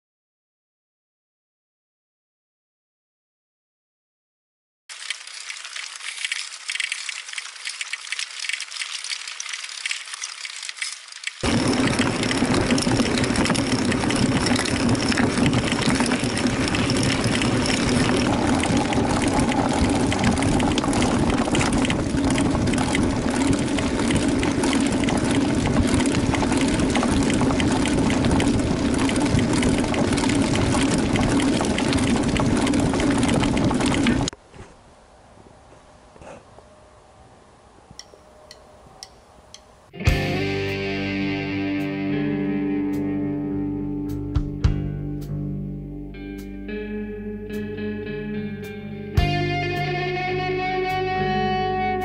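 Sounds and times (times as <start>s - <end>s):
wheels clattering on stones: 4.9s - 34.4s
wind and tyre noise: 10.0s - 40.2s.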